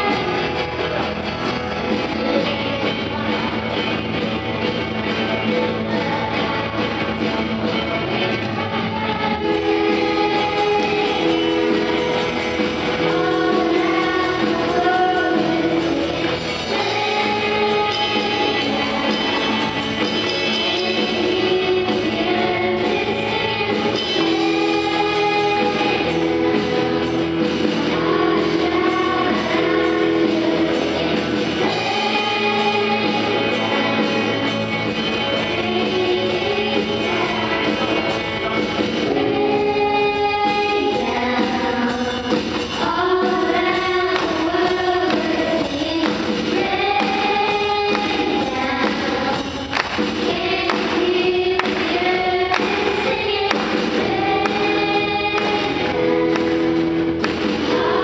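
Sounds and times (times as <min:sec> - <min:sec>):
band accompaniment: 0:00.0 - 0:58.0
group singing a hymn: 0:12.9 - 0:38.2, 0:42.8 - 0:58.0
electronic drum kit: 0:40.5 - 0:58.0.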